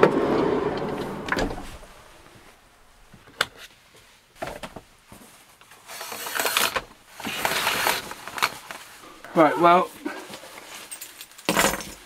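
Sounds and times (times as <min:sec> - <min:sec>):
curtain rings scraping along rail: 0:05.9 - 0:08.1.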